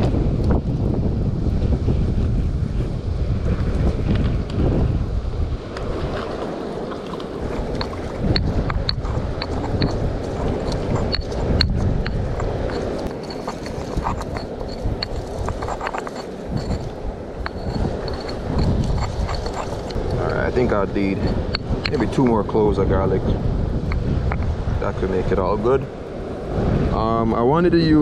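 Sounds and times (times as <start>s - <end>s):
wind buffeting microphone: 0.0s - 28.0s
stone pestle grinding in mortar: 7.1s - 22.5s.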